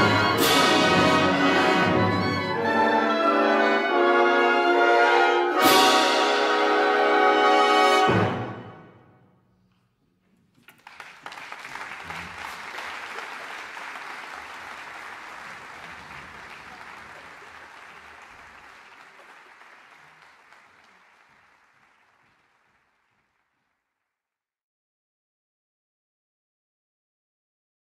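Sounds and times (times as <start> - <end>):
audience applause: 10.5 - 23.9.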